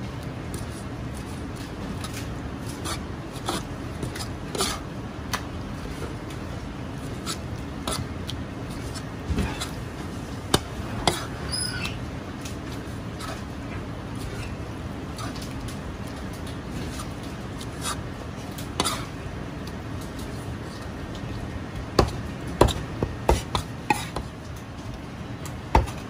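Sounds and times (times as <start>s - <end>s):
low background hum: 0.0s - 26.0s
cleaver chopping on cutting board: 22.0s - 24.3s.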